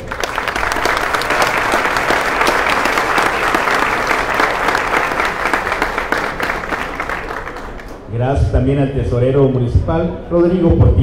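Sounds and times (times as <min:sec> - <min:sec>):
audience applause: 0:00.0 - 0:08.1.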